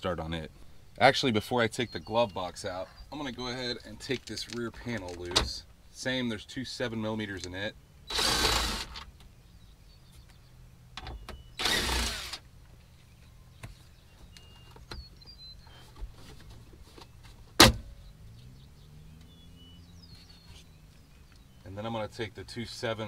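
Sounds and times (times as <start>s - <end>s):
impact driver running: 8.1s - 9.0s, 11.6s - 12.4s.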